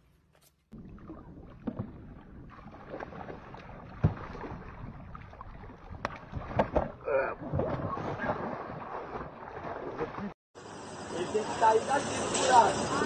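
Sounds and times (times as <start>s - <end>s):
fish splashing in water: 0.8s - 10.3s.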